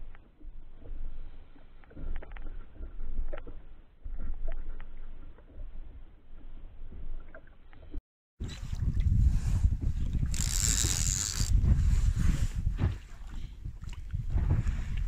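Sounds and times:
water rumbling against boat hull: 0.0 - 15.0.

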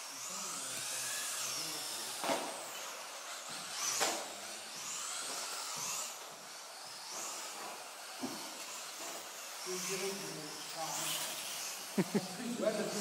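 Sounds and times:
electric motors whining: 0.0 - 13.0.

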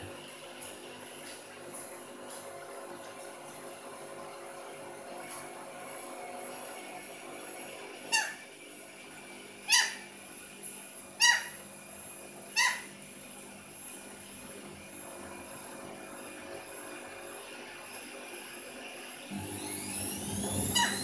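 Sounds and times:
conure calling: 11.2 - 11.6.

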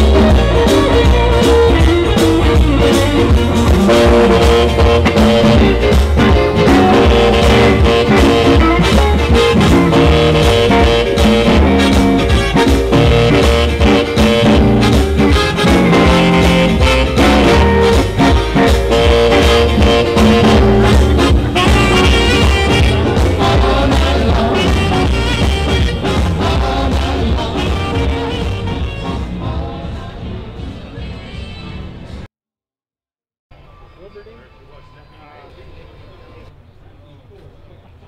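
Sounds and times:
band music with guitar: 0.0 - 32.3.

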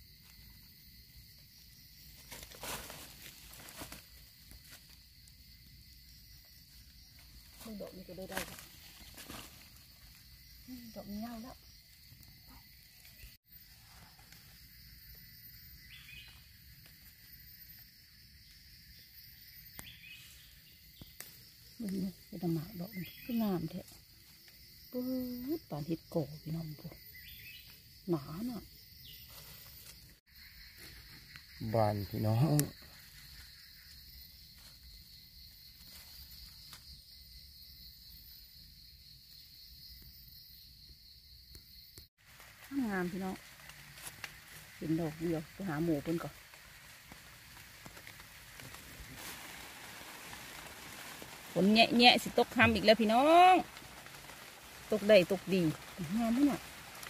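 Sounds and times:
insects droning: 0.0 - 57.0.

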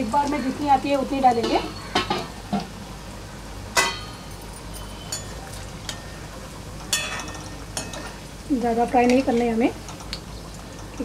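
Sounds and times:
food deep-frying in hot oil: 0.0 - 11.0.

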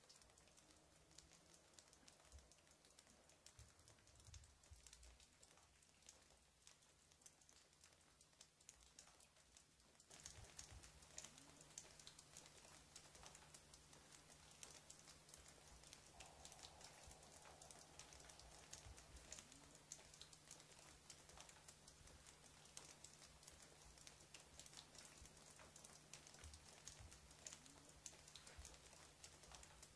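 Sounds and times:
faint rain patter: 0.0 - 29.9
steady low hum: 15.9 - 20.2.

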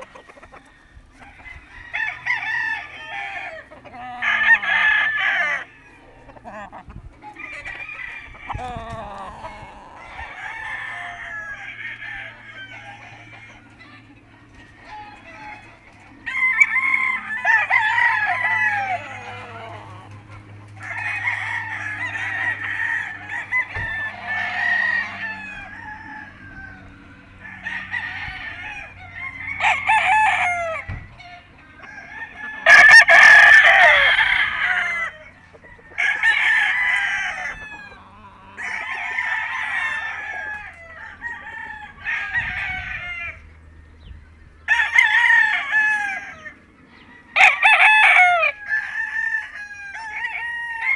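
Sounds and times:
roosters crowing: 0.0 - 50.9.

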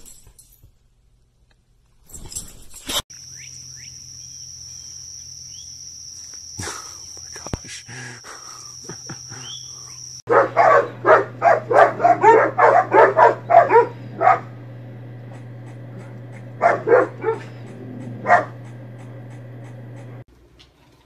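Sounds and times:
dog barking: 10.3 - 14.6, 15.3 - 18.8.

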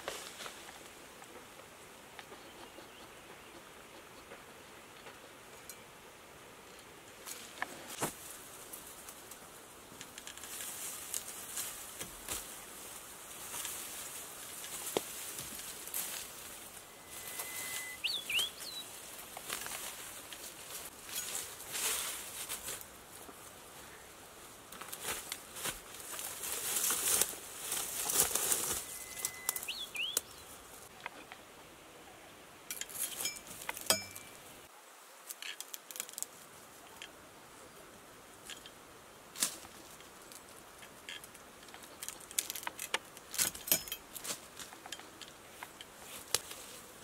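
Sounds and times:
branches and bamboo rustling: 0.0 - 47.0
bird chirping: 2.2 - 5.8, 16.7 - 18.9, 28.6 - 31.3.

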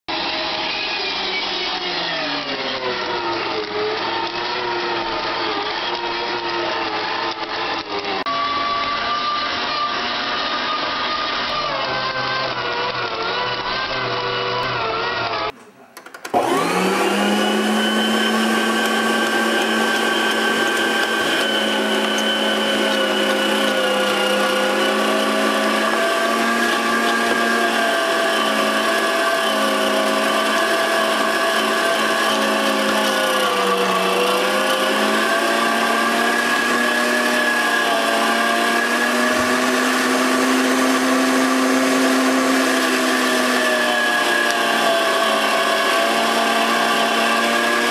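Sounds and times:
electric meat grinder motor: 0.1 - 15.6, 16.2 - 47.9.

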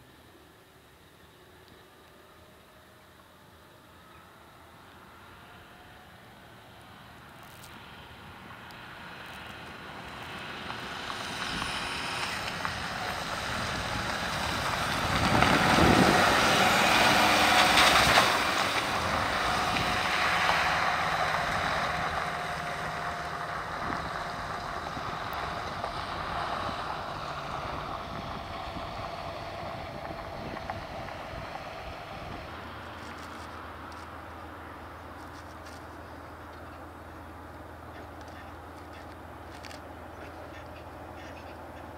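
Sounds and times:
vehicle engine driving past: 1.2 - 41.9
tyres splashing through puddles: 8.7 - 35.6.

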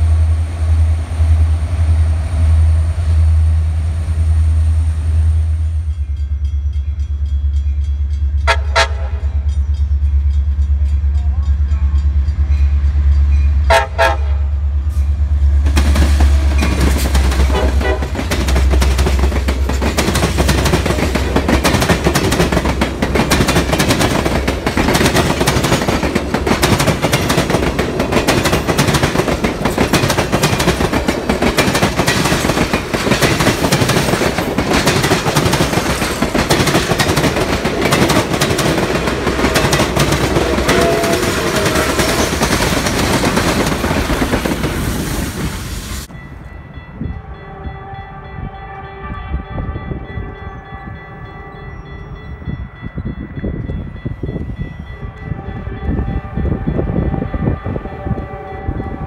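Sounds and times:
train wheels rumbling on rail: 0.0 - 59.0
distant locomotive horn: 8.3 - 9.5, 13.5 - 19.0, 39.0 - 42.7, 47.0 - 52.2, 54.8 - 59.0
wheels clattering over rail joints: 15.7 - 44.9.

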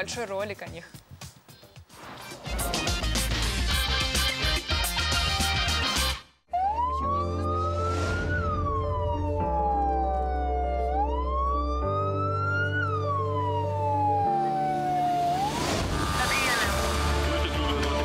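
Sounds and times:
emergency vehicle siren wailing: 6.5 - 17.2
background music sustained chords: 6.6 - 18.0.

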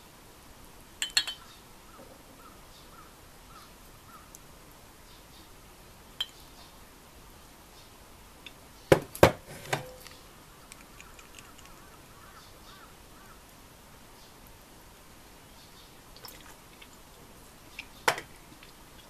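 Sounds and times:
glass clinking and knocking: 1.0 - 1.4.

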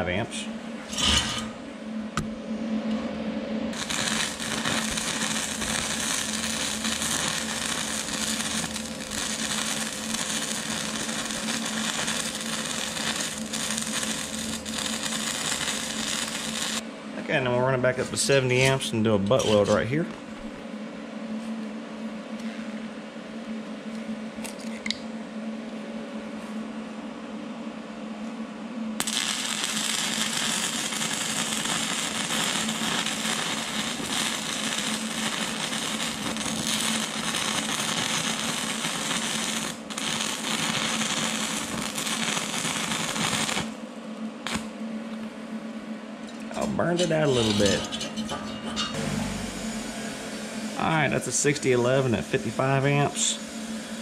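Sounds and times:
welder humming: 0.0 - 20.6, 29.0 - 54.0
welding arc crackling: 3.7 - 16.8, 29.0 - 43.8, 44.4 - 44.7, 46.3 - 54.0.

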